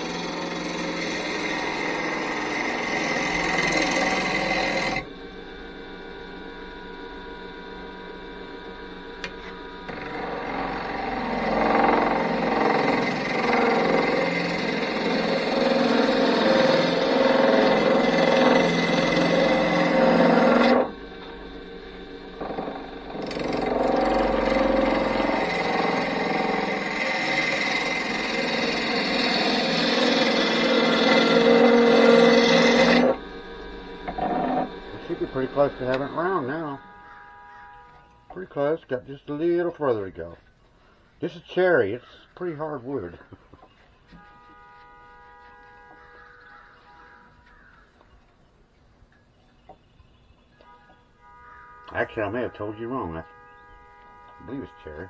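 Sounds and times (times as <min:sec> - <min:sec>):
lathe motor humming: 0:00.0 - 0:38.1.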